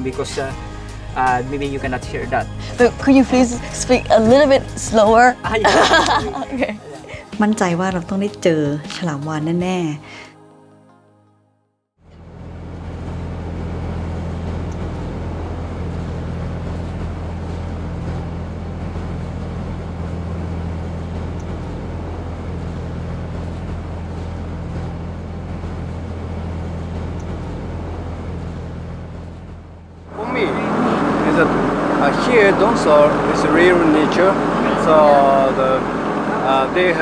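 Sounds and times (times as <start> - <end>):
motorboat engine running: 0.0 - 8.4, 12.0 - 37.0.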